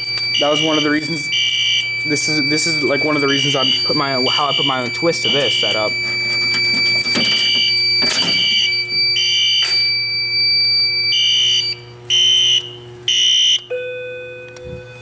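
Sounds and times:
different steady tone: 0.0s - 9.6s
fire alarm horn blasts: 0.0s - 15.0s.

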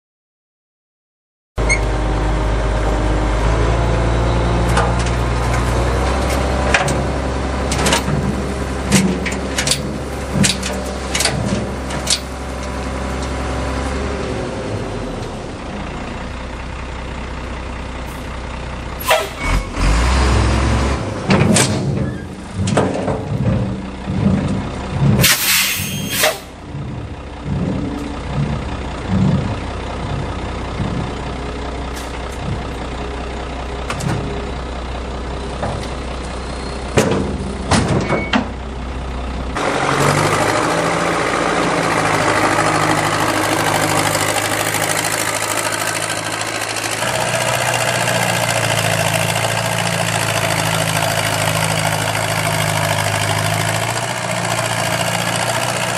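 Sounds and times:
truck engine running: 1.6s - 55.9s
knocks and clunks: 4.6s - 13.4s, 21.2s - 25.4s, 26.2s - 33.0s, 33.8s - 34.5s, 35.5s - 38.6s
short burst of hiss: 25.2s - 26.5s.

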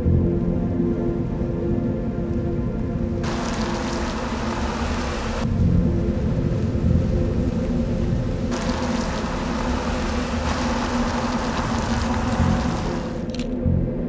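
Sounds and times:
low steady hum: 0.0s - 14.0s
car driving on wet road: 3.2s - 13.4s.

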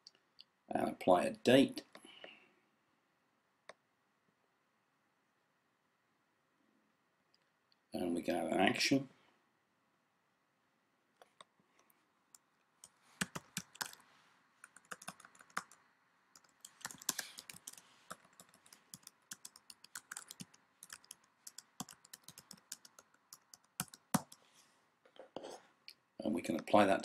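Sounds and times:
typing on a keyboard: 12.8s - 14.0s, 14.6s - 15.8s, 16.4s - 24.4s.

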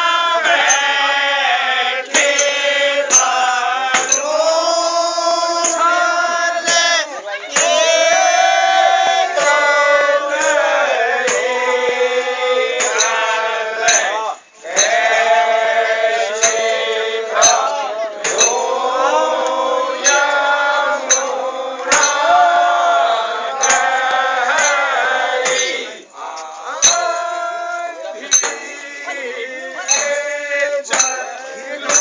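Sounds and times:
sharp struck beat: 0.0s - 1.3s, 2.1s - 7.0s, 7.6s - 26.1s, 26.8s - 29.2s, 29.8s - 32.0s
men singing in chorus: 0.0s - 32.0s.

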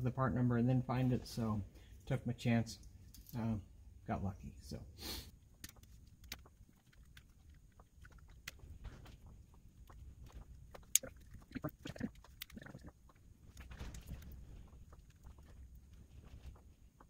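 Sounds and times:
rustling: 5.6s - 17.0s.

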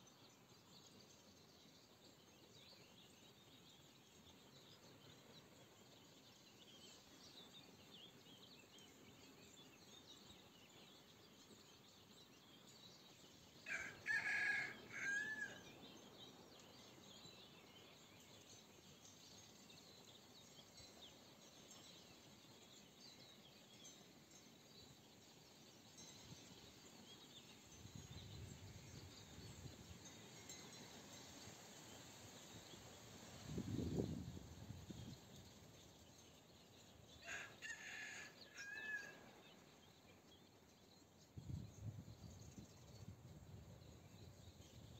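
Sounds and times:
songbirds chirping: 0.0s - 44.9s
chicken crowing: 13.7s - 15.6s, 37.2s - 39.2s.

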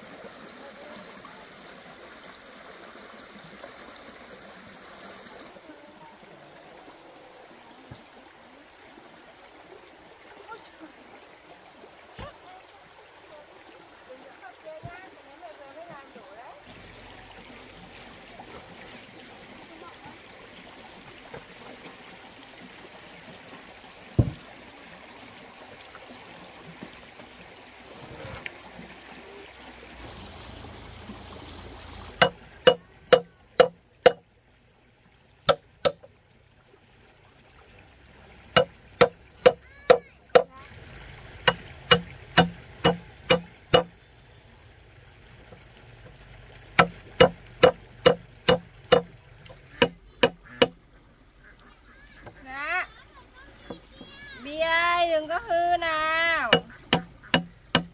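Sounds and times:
trickling stream water: 0.0s - 57.9s
hammer blows on wood: 32.2s - 34.2s, 41.5s - 43.9s.

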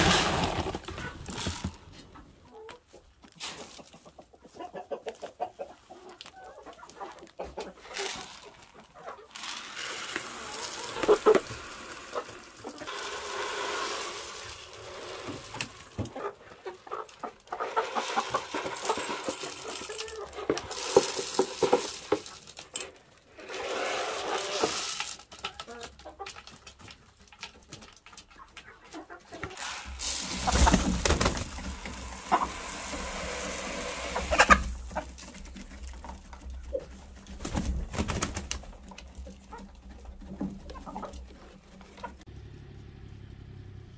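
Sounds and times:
hens clucking: 0.0s - 22.6s, 23.3s - 42.3s
rustling feed: 0.0s - 42.2s.

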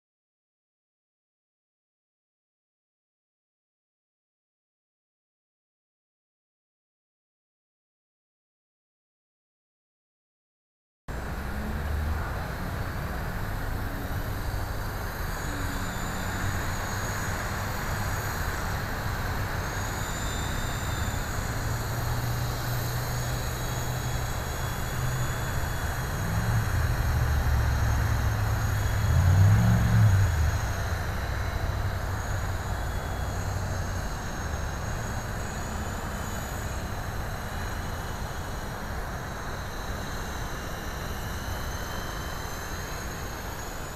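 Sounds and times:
high whine of motors and gears: 11.1s - 43.9s
low hum of rotors: 11.1s - 43.9s.

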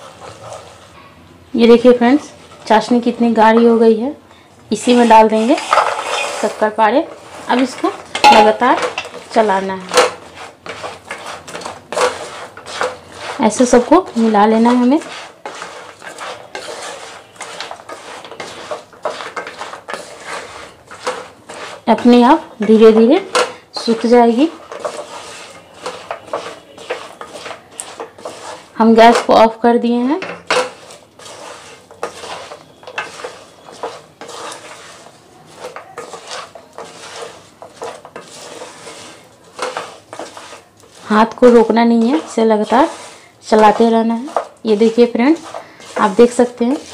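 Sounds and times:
wooden spatula scraping a pan: 0.0s - 46.9s
pieces knocking against pan: 7.6s - 9.2s.

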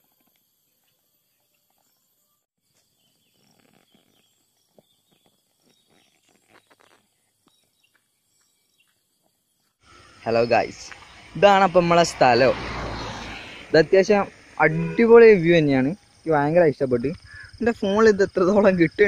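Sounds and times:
faint outdoor hiss: 0.0s - 19.0s.

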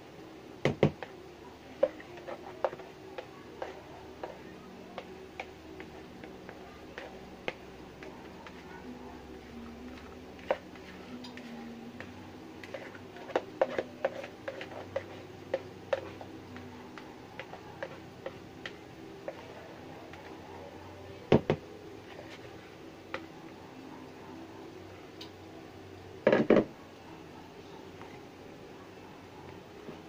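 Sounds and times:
faint steady hum: 0.0s - 30.0s
spatula scraping plastic bowl: 10.0s - 16.3s.

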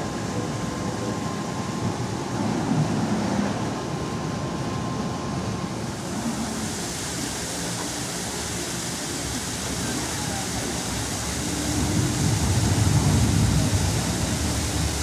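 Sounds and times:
water rushing from waterfall: 5.8s - 15.0s.

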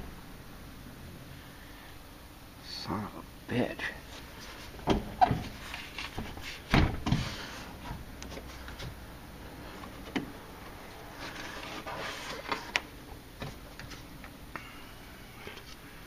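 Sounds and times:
door thump: 6.7s - 7.2s.

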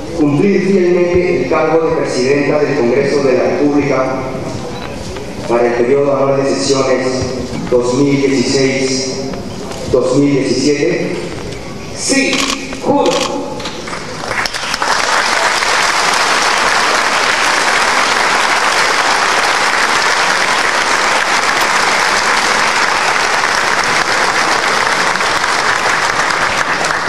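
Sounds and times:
applause from a crowd: 13.8s - 27.0s.

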